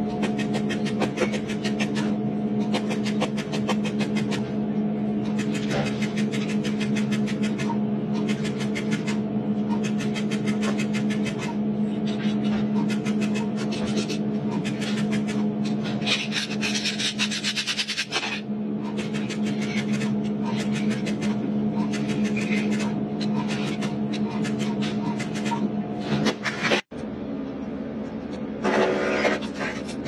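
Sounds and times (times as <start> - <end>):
steady electrical hum: 0.0 - 30.0.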